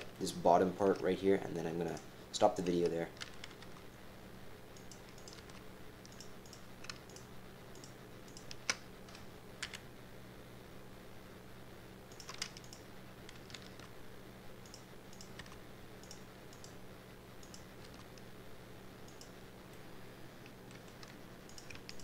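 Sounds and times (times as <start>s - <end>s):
faint steady hum: 0.0s - 22.0s
keyboard and mouse clicks: 2.6s - 3.8s, 4.8s - 9.8s, 12.1s - 13.9s, 14.6s - 16.8s, 17.4s - 18.3s, 19.1s - 19.4s, 20.4s - 22.0s.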